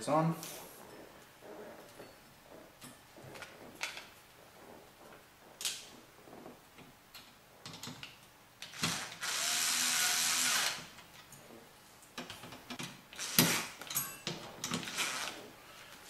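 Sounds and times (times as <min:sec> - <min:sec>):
electric screwdriver running: 0:08.7 - 0:10.8.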